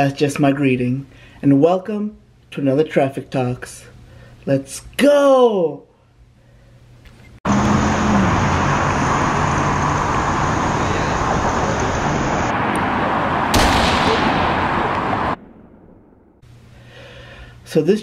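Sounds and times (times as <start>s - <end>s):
loud rushing roar: 7.5s - 16.4s
low hum: 7.5s - 16.9s
sudden bang: 13.5s - 16.4s.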